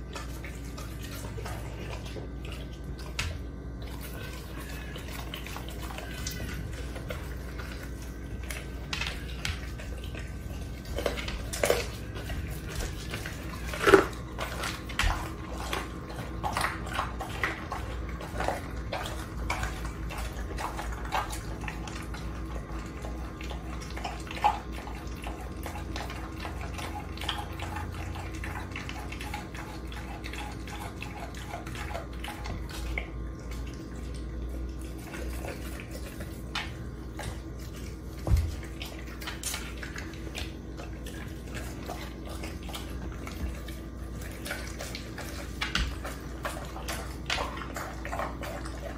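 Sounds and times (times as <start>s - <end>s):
dog chewing wet smacking: 0.0s - 48.9s
steady low hum: 0.0s - 48.9s.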